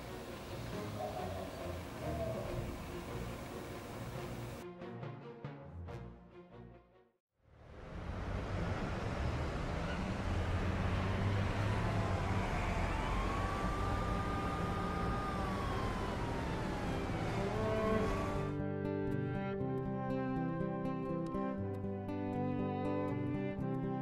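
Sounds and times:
city traffic: 0.0s - 4.6s, 7.6s - 18.5s
distant siren: 0.1s - 4.6s, 9.2s - 18.6s.

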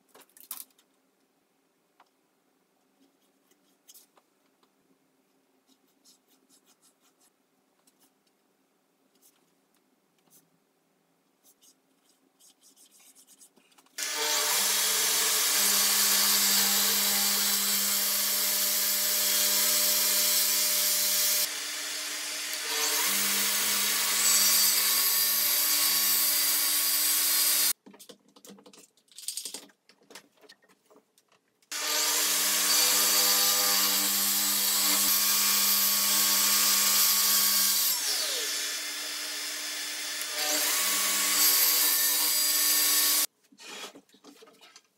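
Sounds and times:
track saw cutting wood: 14.0s - 27.7s, 31.7s - 43.3s.

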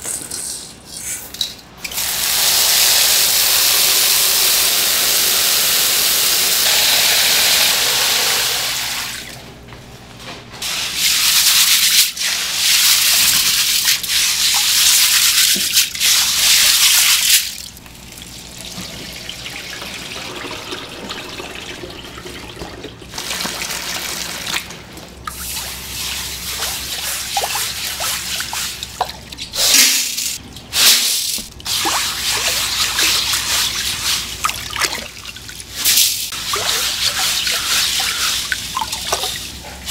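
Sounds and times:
water spraying from hose into bowl: 35.8s - 39.3s.

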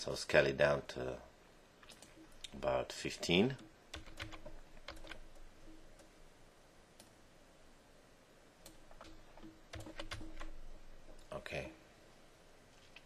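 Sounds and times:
keyboard and mouse clicks: 3.6s - 6.1s, 8.6s - 11.3s.

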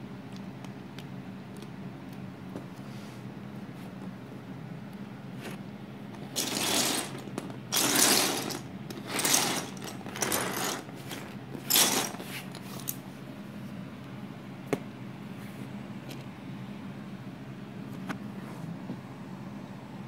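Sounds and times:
toy car wheels rattling on wood: 6.3s - 12.2s.

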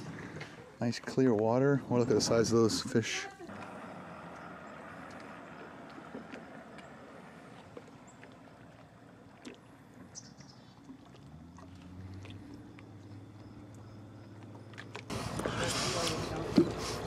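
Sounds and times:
lakeside ambience: 0.0s - 17.0s
distant motorboat engine: 1.6s - 17.0s.

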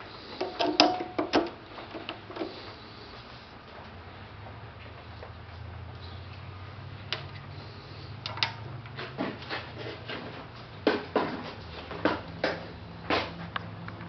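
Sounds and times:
steady low hum: 0.0s - 14.0s
metal clicks and knocks: 0.4s - 2.5s, 8.2s - 8.6s.

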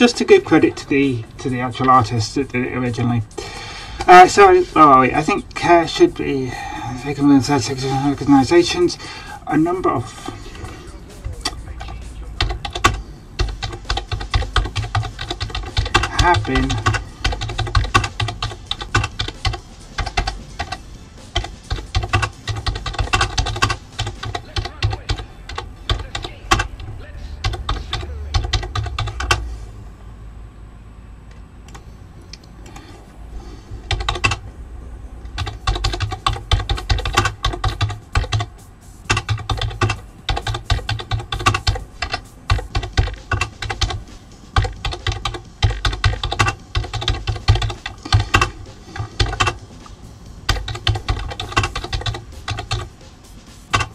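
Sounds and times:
typing on computer keyboard: 9.6s - 29.4s, 33.8s - 34.4s, 35.2s - 53.0s, 53.6s - 53.9s.

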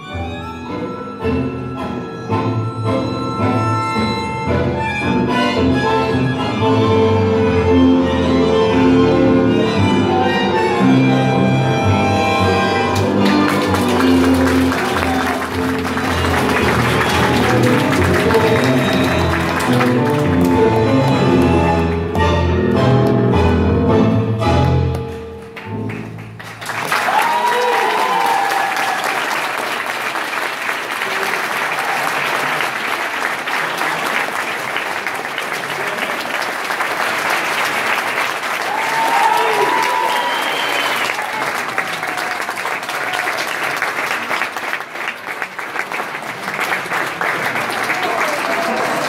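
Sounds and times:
tango music: 0.0s - 26.8s
audience applause: 12.6s - 22.2s, 25.5s - 49.0s
people cheering: 12.8s - 21.6s, 26.6s - 49.0s.

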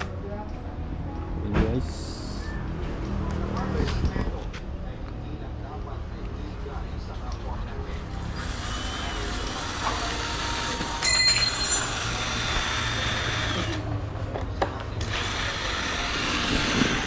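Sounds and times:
cordless drill running: 8.3s - 13.8s, 15.0s - 17.0s
drill whine: 8.3s - 13.8s, 15.1s - 17.0s.

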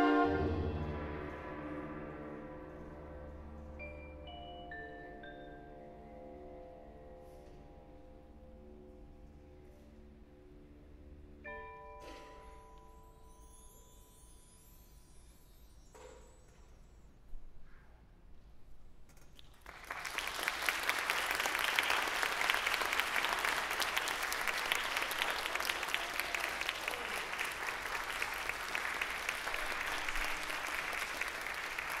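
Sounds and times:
audience applause: 19.5s - 32.0s.

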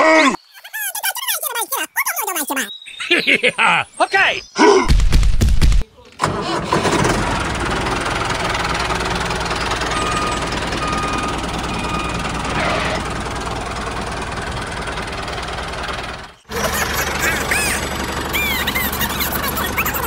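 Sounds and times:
tractor engine running: 6.2s - 20.0s.

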